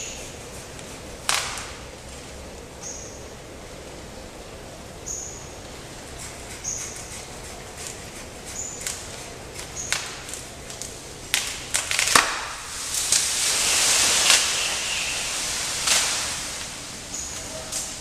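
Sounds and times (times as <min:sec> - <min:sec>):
leaves rustling and swishing: 0:00.0 - 0:02.6, 0:07.8 - 0:18.0
twigs snapping and clicking: 0:01.2 - 0:01.8, 0:08.8 - 0:13.4.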